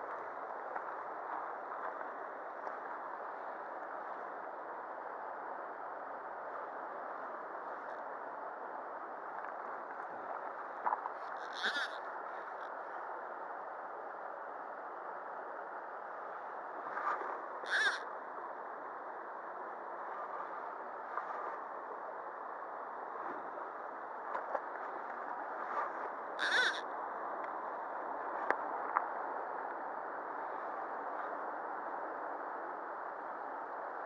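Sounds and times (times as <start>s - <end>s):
bird calling: 11.4s - 12.0s, 17.6s - 18.0s, 26.4s - 26.8s.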